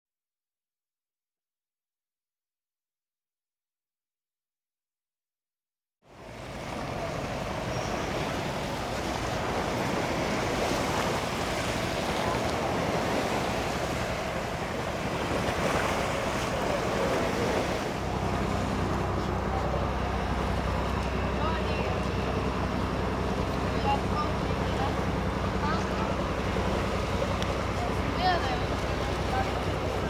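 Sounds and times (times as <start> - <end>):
turboprop engines droning: 6.0 - 30.0
wind and water rushing: 6.0 - 30.0.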